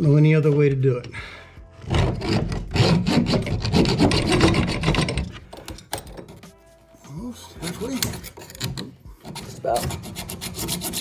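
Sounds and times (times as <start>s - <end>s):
hacksaw sawing through metal nut: 1.9s - 5.3s, 7.6s - 11.0s.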